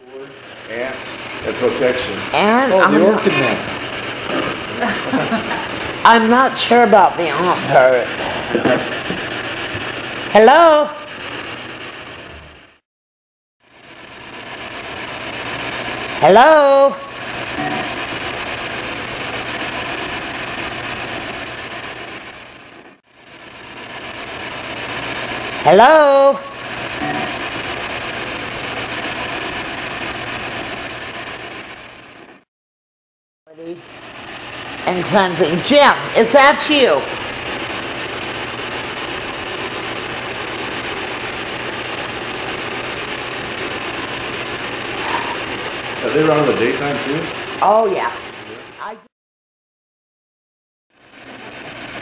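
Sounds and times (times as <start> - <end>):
steady hiss: 0.0 - 10.3, 33.8 - 48.7.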